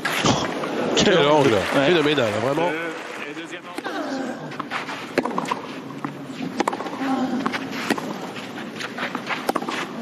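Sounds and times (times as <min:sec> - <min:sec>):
crowd noise: 0:00.0 - 0:10.0
racket striking tennis ball: 0:04.6 - 0:10.0.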